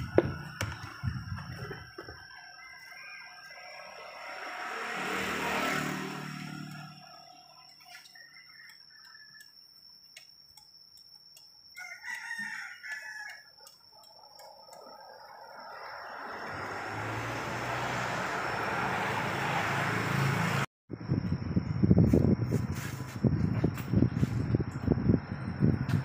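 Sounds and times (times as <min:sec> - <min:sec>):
high-pitched whine: 0:00.0 - 0:08.7
rooster crowing: 0:02.2 - 0:05.5, 0:11.7 - 0:13.7.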